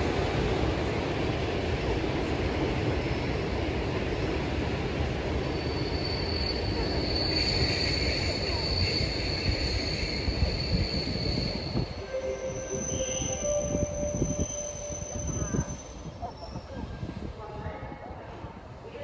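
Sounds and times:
thin high squeal: 9.9 - 16.7.

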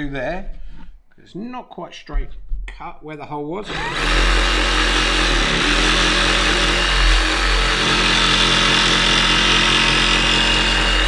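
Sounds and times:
jigsaw cutting board: 3.6 - 11.0.

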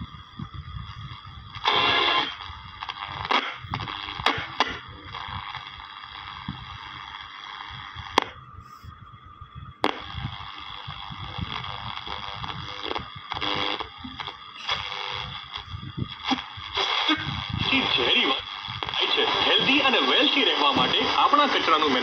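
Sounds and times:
radio static hiss: 0.0 - 22.0
radio switch click: 20.6 - 21.2.

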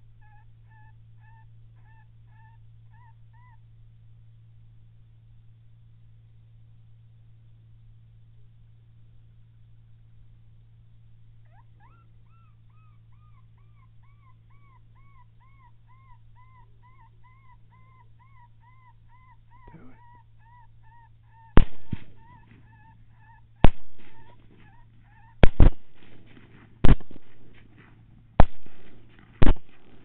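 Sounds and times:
high whimpering calls: 0.1 - 3.6, 11.4 - 30.0
suppressed rifle cracks: 21.6 - 22.7, 23.6 - 24.7, 25.4 - 30.0.

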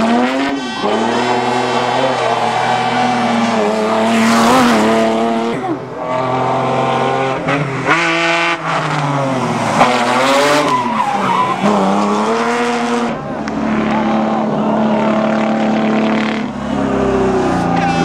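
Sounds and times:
car engine revving high: 0.0 - 18.0
tyre squeal: 9.8 - 12.3.

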